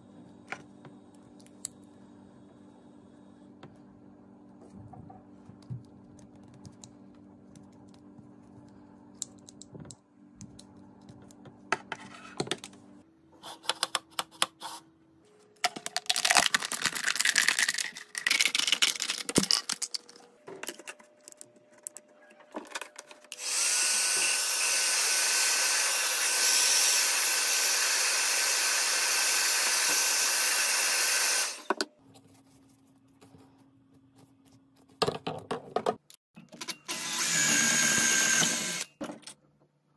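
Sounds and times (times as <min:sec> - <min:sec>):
thin plastic crinkling: 0:15.6 - 0:22.0
handheld power tool whining: 0:23.3 - 0:31.8, 0:36.6 - 0:39.0.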